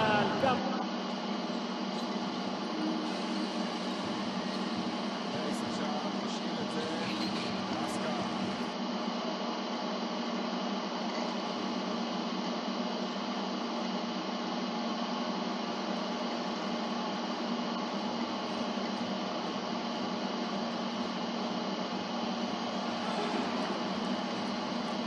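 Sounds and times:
low hum: 17.9 - 25.0.

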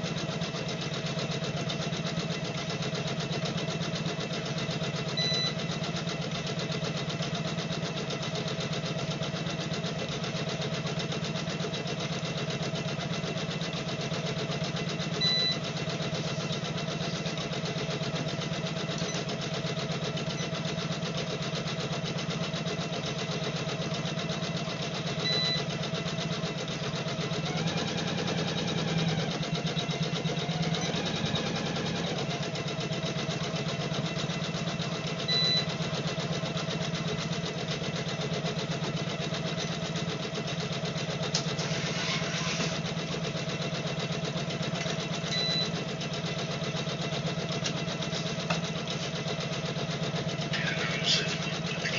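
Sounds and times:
embroidery machine stitching rattle: 0.0 - 51.9.

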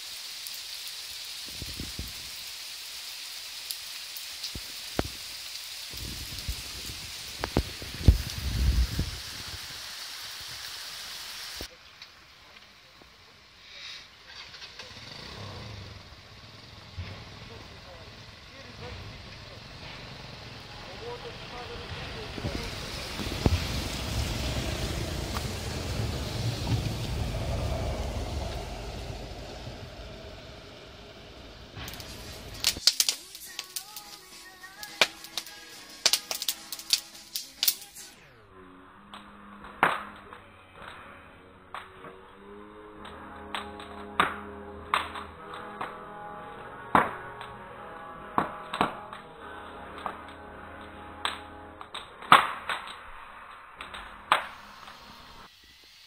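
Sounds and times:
raindrops ticking close by: 0.0 - 10.7, 17.9 - 29.7, 31.8 - 38.1
steady rain hiss: 0.0 - 38.4, 49.2 - 56.0
low rumble: 16.2 - 32.8.

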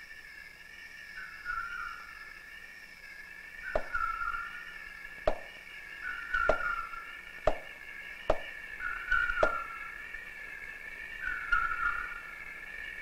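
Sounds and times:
axe chopping into wood: 5.3 - 5.6, 7.5 - 7.7, 8.3 - 8.5.

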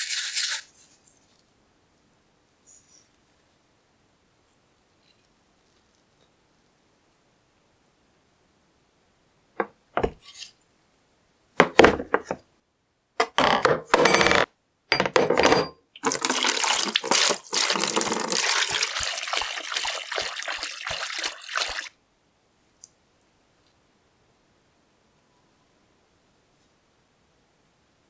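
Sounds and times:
metal parts knocking in plastic tub: 13.2 - 16.4
liquid pouring and splashing: 16.0 - 21.9.

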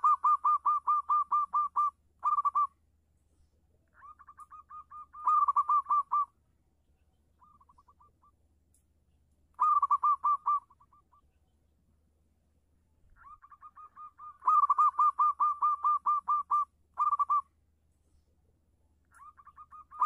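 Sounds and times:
dove cooing: 0.0 - 2.7, 4.0 - 6.4, 9.6 - 11.2, 13.2 - 17.5, 19.1 - 20.0.

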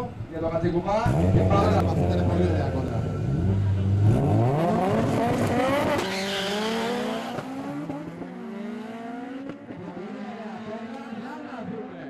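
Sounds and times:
race car engines revving: 0.0 - 12.0
tyre squeal: 5.9 - 7.3.

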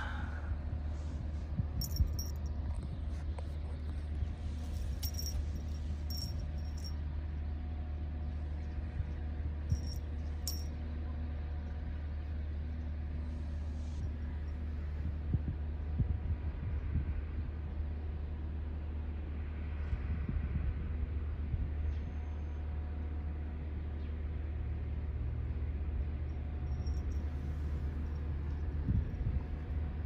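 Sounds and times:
low machinery hum: 0.0 - 30.0
faint steady tones: 3.8 - 7.1.

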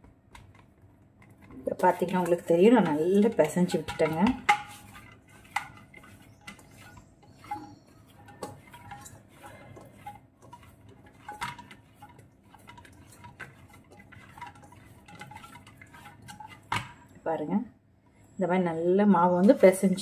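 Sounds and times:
knocks and clinks of metal bowl: 2.2 - 17.0.

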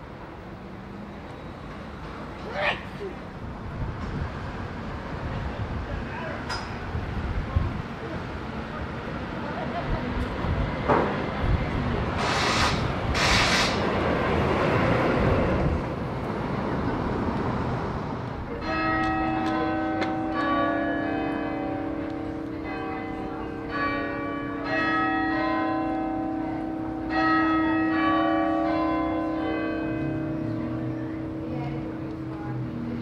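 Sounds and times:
church bells ringing: 18.5 - 33.0.

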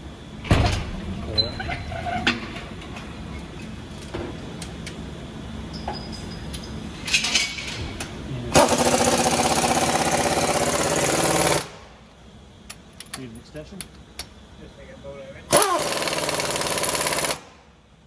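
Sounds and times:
pneumatic impact wrench rattle: 8.5 - 11.8, 15.5 - 17.6.

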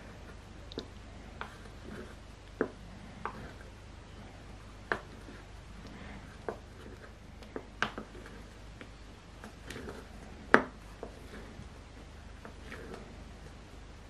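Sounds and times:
spatula scraping a bowl: 1.3 - 4.4, 5.0 - 7.2, 9.5 - 10.4, 11.0 - 11.7.

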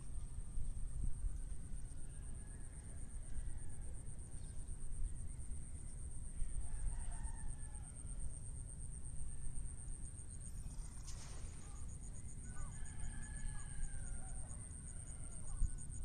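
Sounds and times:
wind rumble on microphone: 0.0 - 3.6
faint rooster crow: 0.4 - 9.7, 10.8 - 16.0.

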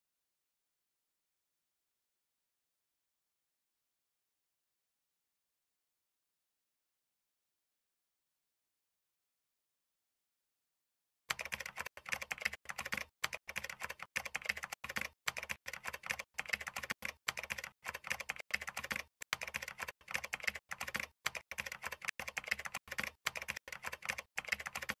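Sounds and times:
rapid typing on keyboard: 11.3 - 25.0.

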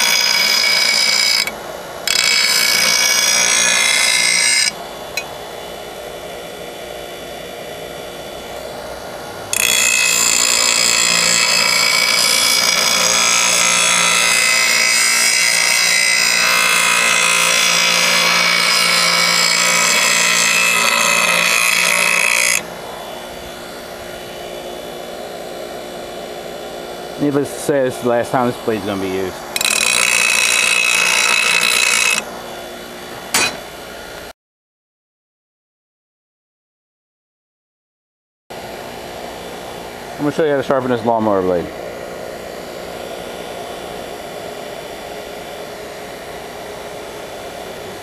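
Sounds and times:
grinder wheel grinding steel: 0.0 - 5.3, 8.4 - 25.4, 27.1 - 33.7
grinder humming: 0.0 - 34.3, 38.5 - 48.0.

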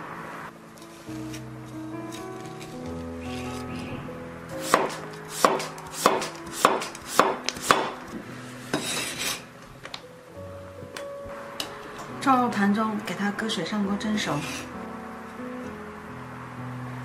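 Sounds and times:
slices scraping on board: 8.7 - 9.5.

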